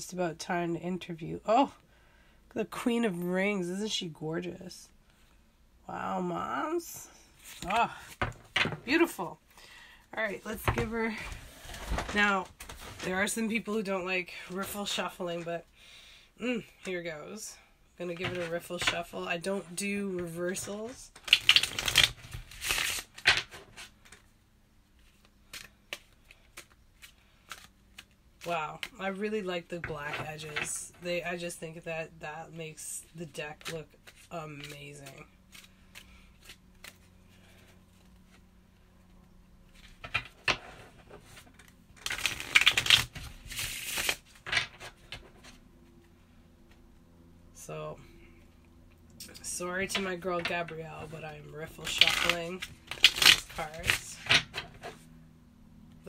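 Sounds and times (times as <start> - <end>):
cards rustling: 7.3 - 9.2, 18.0 - 24.3, 24.9 - 31.5, 33.5 - 38.9, 39.7 - 46.0, 49.4 - 55.0
cards riffle shuffling: 20.2 - 24.2, 25.0 - 29.1, 33.6 - 38.4, 39.7 - 45.6, 51.7 - 55.0.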